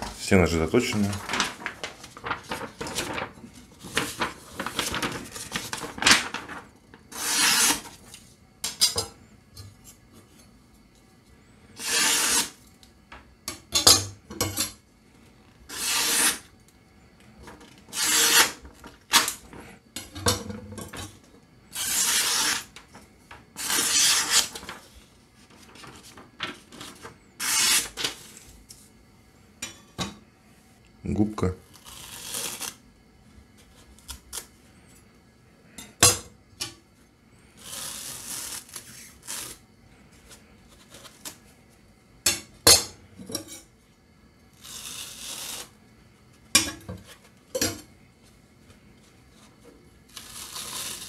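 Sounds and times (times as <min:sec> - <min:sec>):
paper rustling: 0:00.0 - 0:07.0, 0:23.7 - 0:28.2
knife slicing paper: 0:01.0 - 0:08.0, 0:11.8 - 0:12.6, 0:15.7 - 0:16.4, 0:21.8 - 0:22.7, 0:23.6 - 0:24.8, 0:27.4 - 0:28.1, 0:50.1 - 0:51.0.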